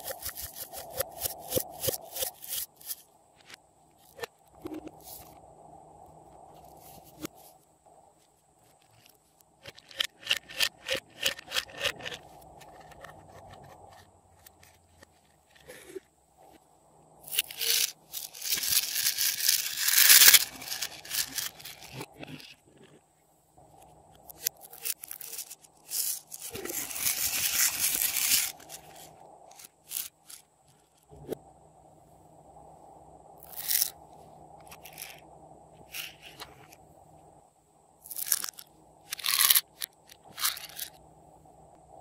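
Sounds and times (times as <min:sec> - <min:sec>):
plastic items clicking: 0:17.3 - 0:22.0
plastic crinkling and rustling: 0:24.8 - 0:29.0.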